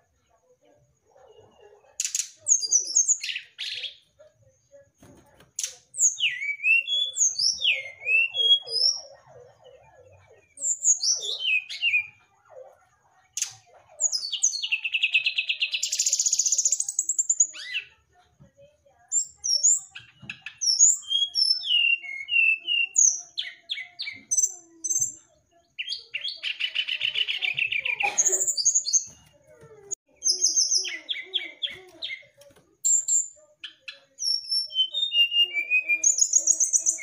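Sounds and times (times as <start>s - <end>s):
bird singing whistled notes: 6.0s - 9.0s.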